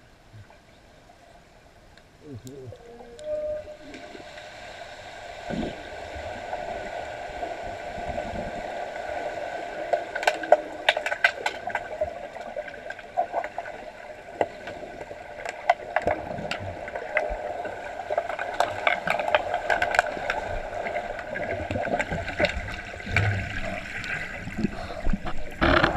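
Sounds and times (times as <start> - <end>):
underwater hum: 0.0 - 25.9
sharp underwater clicks and clacks: 9.9 - 13.7, 18.1 - 25.9.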